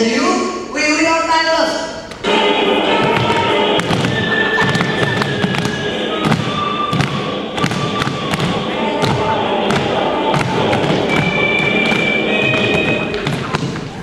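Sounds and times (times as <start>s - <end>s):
steady held tones: 0.9s - 14.0s
thumps and knocks: 3.0s - 14.0s.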